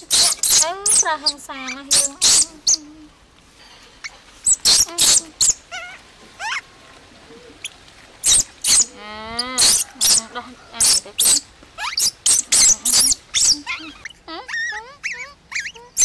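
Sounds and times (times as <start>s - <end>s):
baby monkey screaming: 0.0s - 2.9s, 4.4s - 6.7s, 8.2s - 16.0s.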